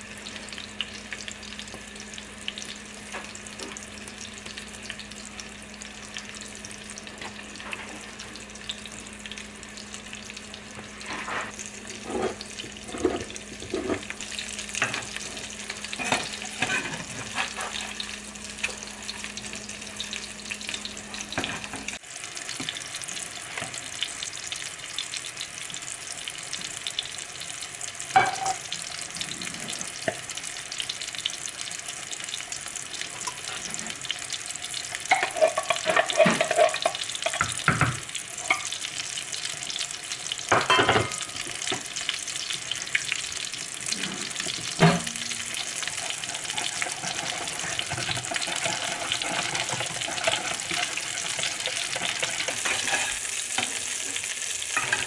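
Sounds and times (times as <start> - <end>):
patties sizzling in oil: 0.0 - 55.0
spatula knocking and scraping pan: 16.0 - 18.0, 35.1 - 38.6, 44.0 - 53.8.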